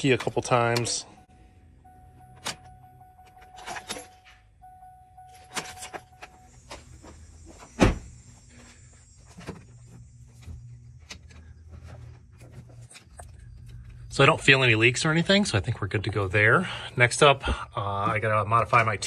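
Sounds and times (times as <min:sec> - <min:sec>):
electric fuel pump whining: 0:04.6 - 0:19.0.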